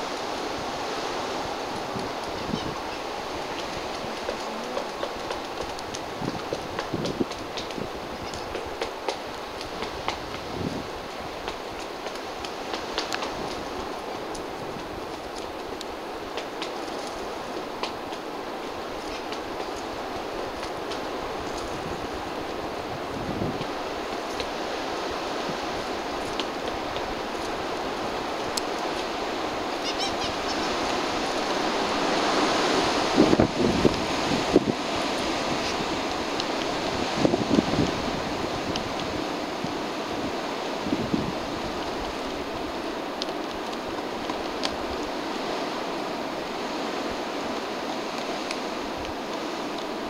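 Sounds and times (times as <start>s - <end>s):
rushing outdoor noise: 0.0s - 50.0s
woodpecker pecking tree trunk: 2.2s - 10.5s.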